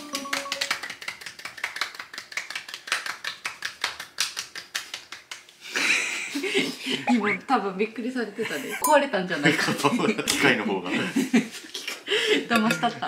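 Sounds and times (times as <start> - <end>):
hands clapping rapidly: 0.0 - 5.6.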